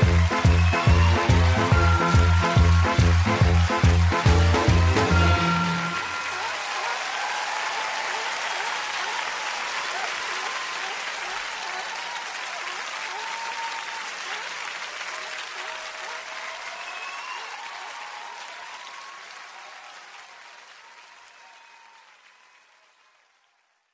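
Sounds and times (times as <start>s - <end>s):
people whistling: 0.0s - 6.6s, 16.6s - 17.8s
people calling out: 0.0s - 12.1s
crowd applauding: 0.0s - 23.9s.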